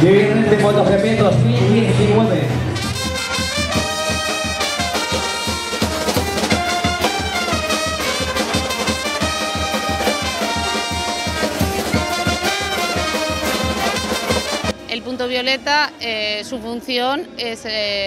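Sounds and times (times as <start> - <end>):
brass band playing: 0.0 - 15.0
drums keeping a beat: 1.3 - 15.0.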